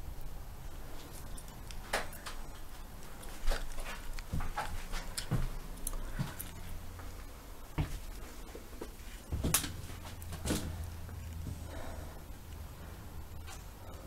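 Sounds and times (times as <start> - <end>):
low steady hum: 0.0 - 14.0
footsteps and knocks: 1.8 - 11.7.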